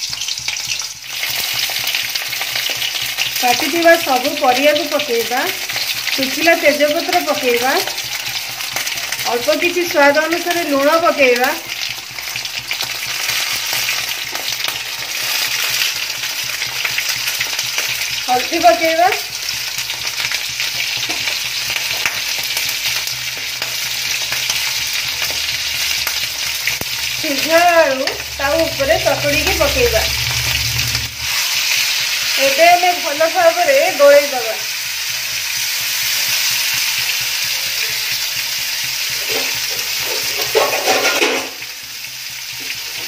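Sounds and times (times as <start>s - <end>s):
oil sizzling with vegetables: 0.0s - 43.0s
steel spatula scraping: 22.0s - 32.7s.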